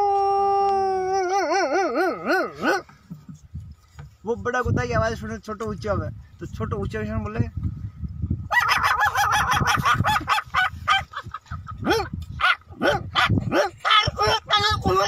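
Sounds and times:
man imitating puppy yips: 0.0s - 2.9s, 8.5s - 11.1s, 11.8s - 14.6s
man imitating puppy whimpers: 0.8s - 2.8s.

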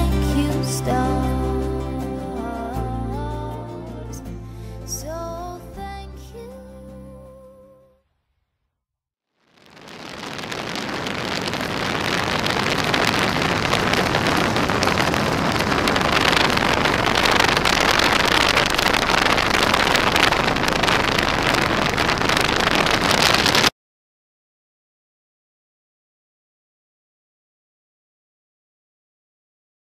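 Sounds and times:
wind rush on microphone: 9.6s - 23.7s.

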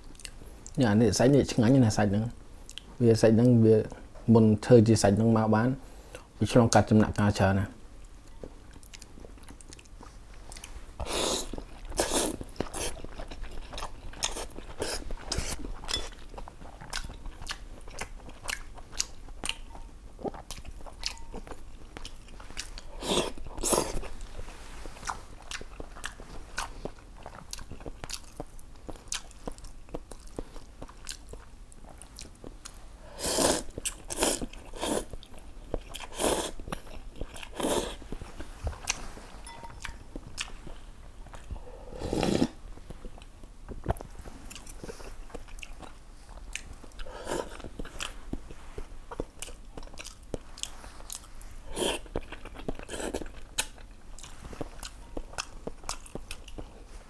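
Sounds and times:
chewing and lip clicks: 8.0s - 10.8s, 11.4s - 24.0s, 25.0s - 32.8s, 33.8s - 38.2s, 42.9s - 56.8s.

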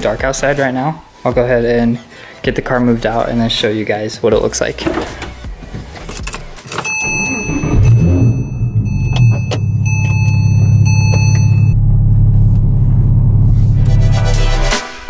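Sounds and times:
car engine starting and idling: 4.8s - 14.0s
high electronic tone: 6.9s - 12.0s.

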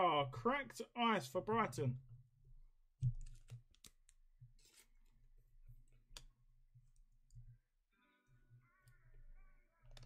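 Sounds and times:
cards and plastic sleeve rustling: 3.0s - 5.2s.

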